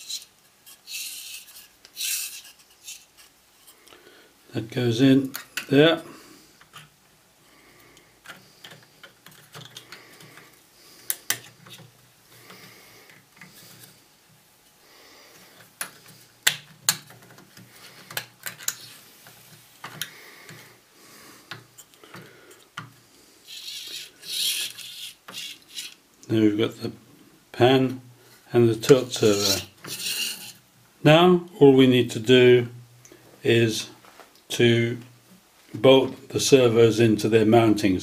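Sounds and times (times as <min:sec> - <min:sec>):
plastic parts clicking and tapping: 0:08.2 - 0:10.5, 0:11.1 - 0:11.9, 0:15.6 - 0:20.6
plastic scrape: 0:23.5 - 0:26.0, 0:29.2 - 0:30.6.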